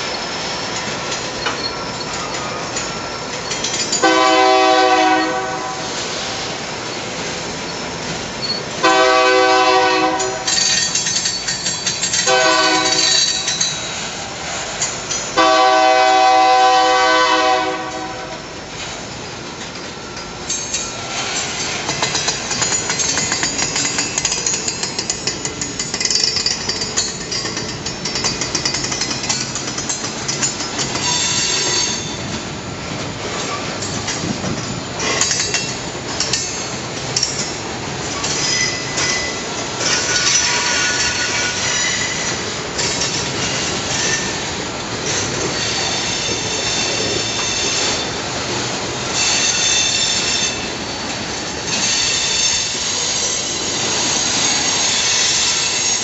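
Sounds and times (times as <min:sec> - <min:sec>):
train wheels clattering over rails: 0:00.0 - 0:56.0
high-pitched wheel squeal: 0:31.0 - 0:32.2, 0:39.9 - 0:42.4, 0:45.5 - 0:48.1, 0:51.7 - 0:56.0.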